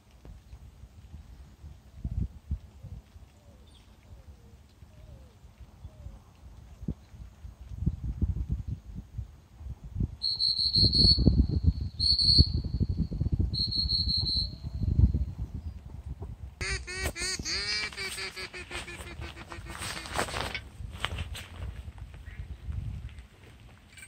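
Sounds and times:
wind rumble on microphone: 0:00.0 - 0:24.0
rapid high piping notes: 0:16.6 - 0:20.1
goose-like honking calls: 0:16.6 - 0:20.4.

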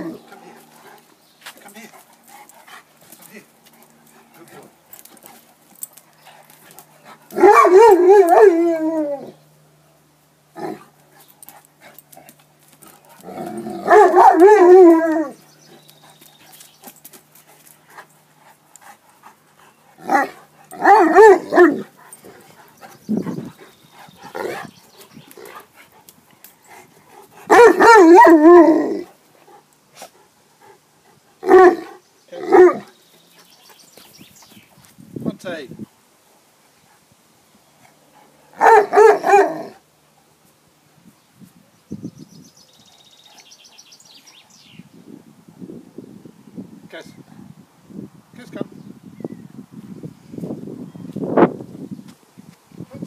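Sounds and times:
dog yelping: 0:07.4 - 0:09.3, 0:13.8 - 0:15.4, 0:20.1 - 0:21.9, 0:27.5 - 0:29.0
dog howling: 0:07.4 - 0:09.4, 0:13.3 - 0:15.4, 0:20.1 - 0:21.8.

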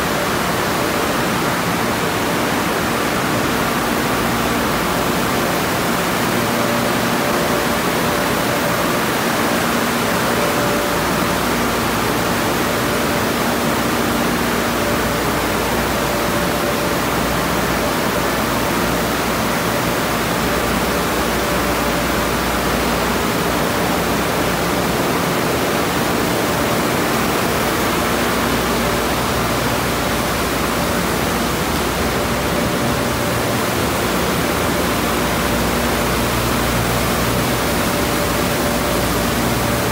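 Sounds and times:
car wash equipment running: 0:00.0 - 0:39.9.

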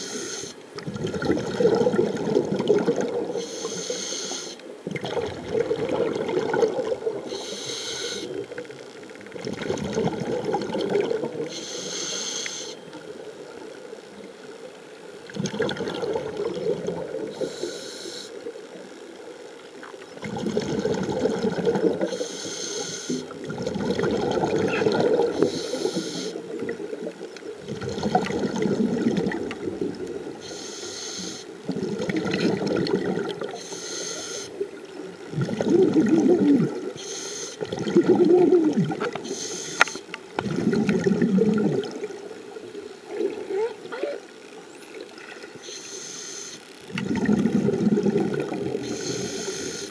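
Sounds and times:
diver breathing through regulator: 0:00.0 - 0:00.6, 0:03.3 - 0:04.6, 0:07.3 - 0:08.4, 0:11.5 - 0:12.9, 0:17.3 - 0:18.4, 0:22.0 - 0:23.4, 0:25.1 - 0:26.5, 0:30.4 - 0:31.5, 0:33.5 - 0:34.6, 0:37.0 - 0:37.8, 0:39.2 - 0:40.1, 0:45.6 - 0:46.7, 0:48.8 - 0:49.9
bubbling exhaust: 0:47.0 - 0:49.4.

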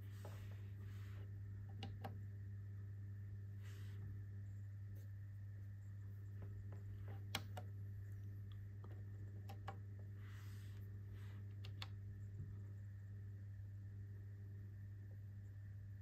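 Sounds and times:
steady low hum: 0:00.0 - 0:16.0
plastic buttons clicking: 0:07.1 - 0:07.7.

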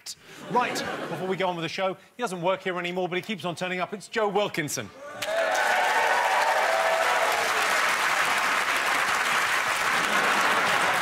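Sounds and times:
cheers and whoops: 0:05.0 - 0:08.0
audience applauding: 0:05.2 - 0:11.0.

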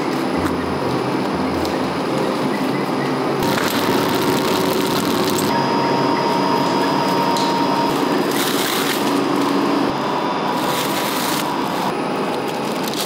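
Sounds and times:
factory machinery hum: 0:00.0 - 0:13.0
plastic film crinkling: 0:03.4 - 0:05.5, 0:10.5 - 0:13.0.

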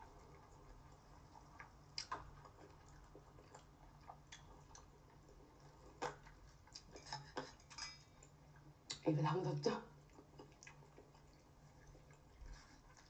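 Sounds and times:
quiet chewing: 0:00.0 - 0:09.1, 0:09.8 - 0:13.0
faint low hum: 0:00.0 - 0:13.0.

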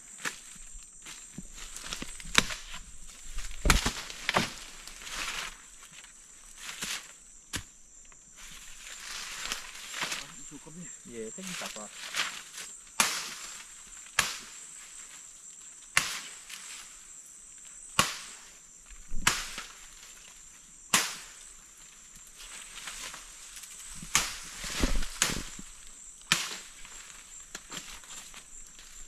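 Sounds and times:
high insect whine: 0:00.0 - 0:29.0
machete chopping wood: 0:03.4 - 0:04.6, 0:13.0 - 0:13.5, 0:14.2 - 0:14.6, 0:16.0 - 0:16.2, 0:18.0 - 0:18.4, 0:19.2 - 0:19.7, 0:20.9 - 0:21.4, 0:24.0 - 0:25.6, 0:26.3 - 0:26.7.

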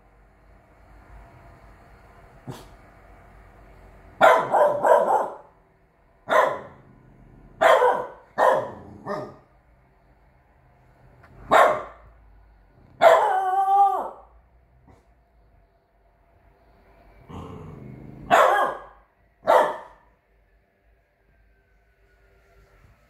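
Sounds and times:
puppy howling bark: 0:04.2 - 0:05.5, 0:06.3 - 0:06.8, 0:07.6 - 0:09.4, 0:13.0 - 0:14.4, 0:18.2 - 0:20.0
puppy barking: 0:04.2 - 0:05.6, 0:06.2 - 0:06.8, 0:07.6 - 0:09.5, 0:11.4 - 0:12.1, 0:13.0 - 0:14.2, 0:18.2 - 0:20.1.

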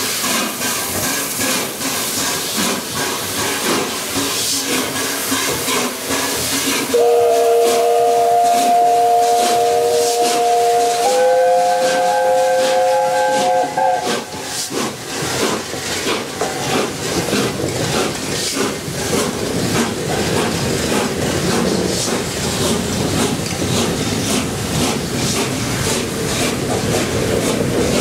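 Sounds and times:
steam hiss: 0:00.0 - 0:28.0
steam train passing with beats: 0:00.0 - 0:28.0
steam locomotive chime whistle: 0:06.9 - 0:14.5.

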